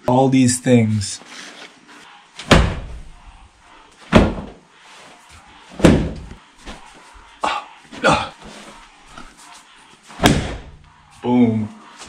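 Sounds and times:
cloth slapping walls: 2.4s - 3.1s, 4.0s - 4.6s, 5.7s - 6.9s, 10.1s - 10.8s.

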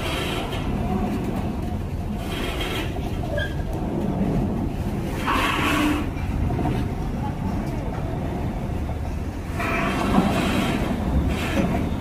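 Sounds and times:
diesel engines rumbling: 0.0s - 12.0s.

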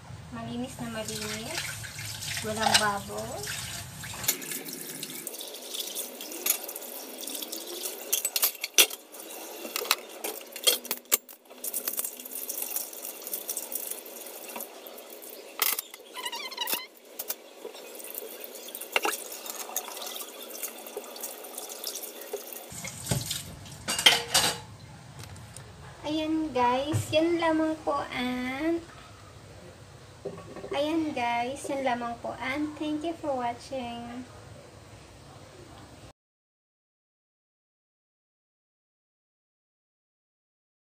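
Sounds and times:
tap water running into sink: 1.0s - 10.6s, 11.4s - 16.2s, 16.9s - 23.9s
dishes clinking: 5.7s - 13.8s, 15.6s - 20.6s, 23.1s - 24.7s.

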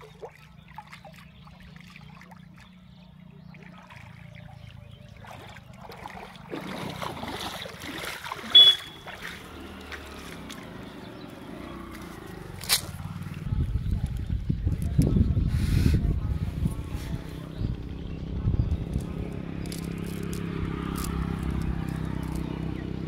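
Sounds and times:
wading steps: 0.0s - 14.2s
water trickling and splashing: 0.0s - 15.1s, 18.8s - 23.0s.

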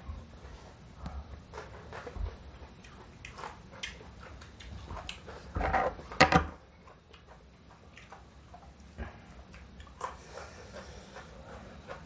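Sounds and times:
crisp bites and wet chewing: 6.8s - 12.0s.

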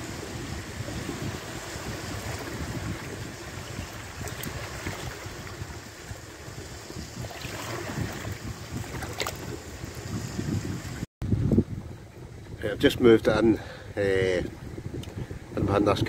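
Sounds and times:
waves lapping over rocks: 0.0s - 11.0s
wind buffeting microphone: 0.0s - 16.0s.

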